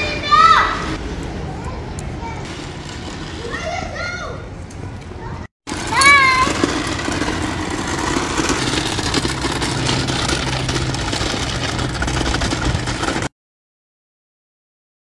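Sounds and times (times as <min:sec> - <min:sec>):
toy vacuum cleaner scraping on tarmac: 0:02.4 - 0:04.1, 0:05.7 - 0:13.3.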